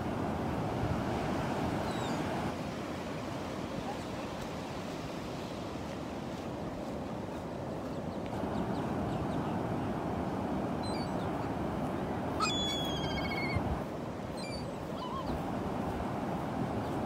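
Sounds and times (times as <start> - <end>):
surf washing on beach: 0.0 - 17.0
bird calls: 12.4 - 13.6, 14.4 - 15.4.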